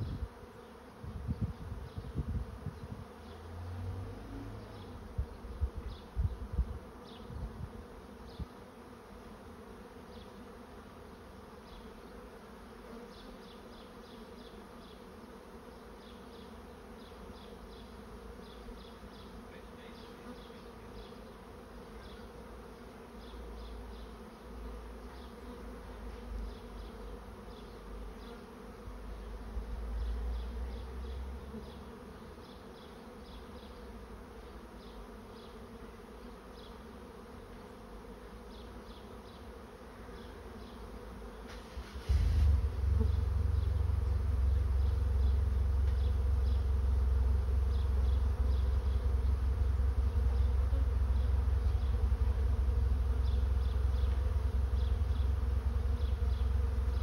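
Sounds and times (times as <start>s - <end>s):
bees buzzing: 0.0s - 57.0s
low rumble: 42.1s - 47.7s.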